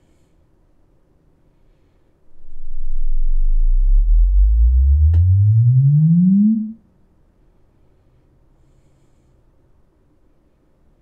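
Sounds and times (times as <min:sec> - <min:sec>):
deep rising sine sweep: 0:02.3 - 0:06.8.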